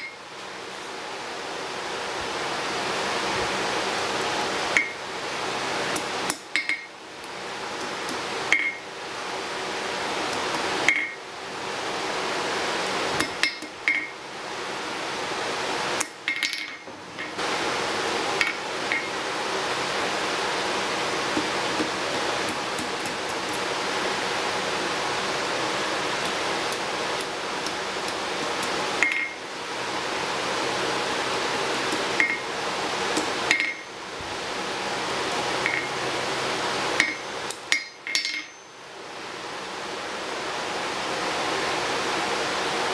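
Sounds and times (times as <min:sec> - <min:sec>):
steady rushing hiss: 0:17.2 - 0:37.7.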